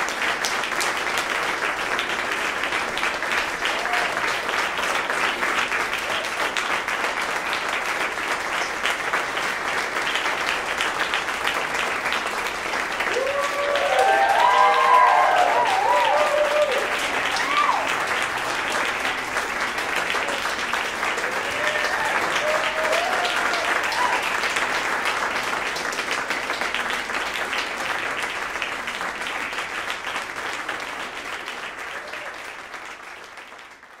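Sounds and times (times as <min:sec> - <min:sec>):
audience applauding: 0:00.0 - 0:34.0
audience cheering: 0:03.6 - 0:04.4, 0:13.0 - 0:18.3, 0:21.1 - 0:24.6, 0:31.8 - 0:32.5.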